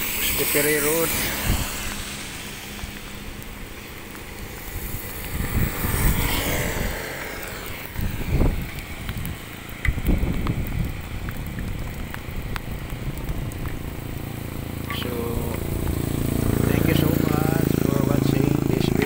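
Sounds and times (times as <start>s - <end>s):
vehicle passing: 0.0s - 9.7s, 13.2s - 19.0s
tyres hissing on wet road: 0.0s - 19.0s
wind thumping on microphone: 1.3s - 2.2s, 4.4s - 14.6s.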